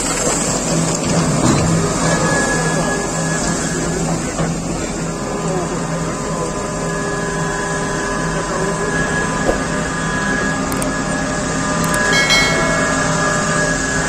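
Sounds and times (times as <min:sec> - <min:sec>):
excavator machine hum: 0:00.0 - 0:14.0
brief higher tone: 0:12.0 - 0:14.0.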